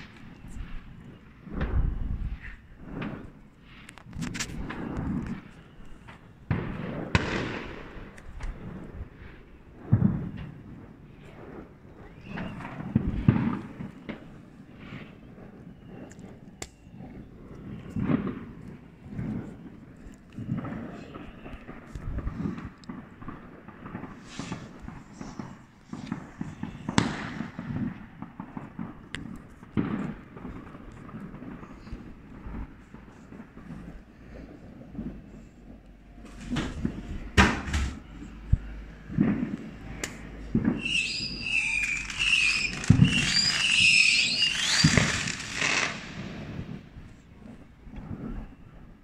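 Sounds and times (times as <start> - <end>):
fireworks bang: 0.0 - 15.2, 17.7 - 19.8, 20.4 - 48.2
fireworks pops and crackles: 0.0 - 49.0.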